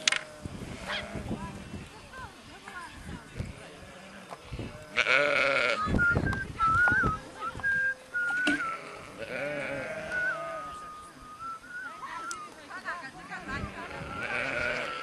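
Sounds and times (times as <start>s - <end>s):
sheep bleating: 0.8s - 1.2s, 3.9s - 5.9s, 8.5s - 10.8s, 13.5s - 15.0s
high wavering whistle: 5.9s - 8.9s, 10.0s - 12.6s.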